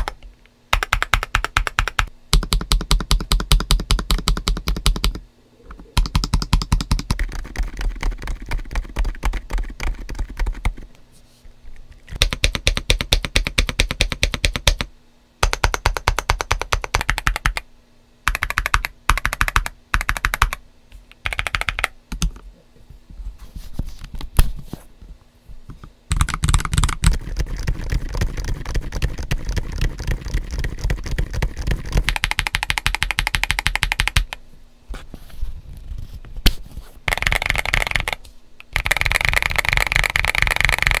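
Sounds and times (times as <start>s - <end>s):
mechanical keyboard typing: 0.0s - 10.9s, 12.1s - 17.6s, 18.3s - 20.6s, 21.2s - 22.4s, 26.1s - 34.4s, 37.1s - 41.0s.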